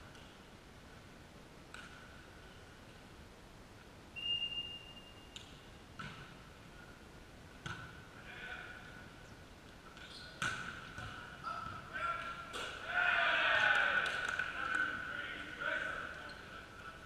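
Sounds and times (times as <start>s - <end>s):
referee's whistle blast: 4.2s - 5.3s.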